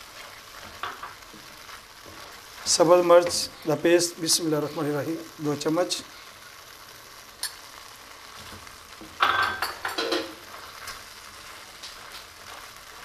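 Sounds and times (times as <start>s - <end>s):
wooden spatula stirring: 0.0s - 3.8s
onions sizzling in a wok: 0.0s - 13.0s
metal spoon clattering on pan: 9.2s - 10.4s.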